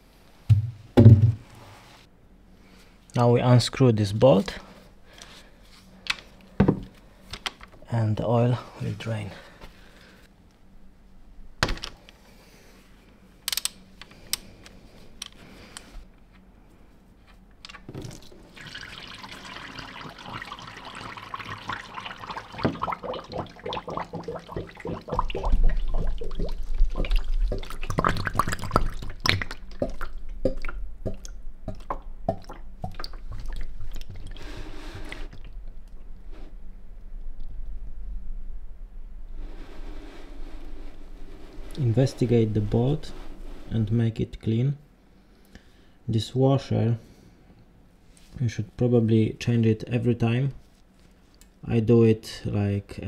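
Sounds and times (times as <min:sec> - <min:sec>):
oil pouring and splashing: 0:17.9 - 0:30.8, 0:31.8 - 0:35.6.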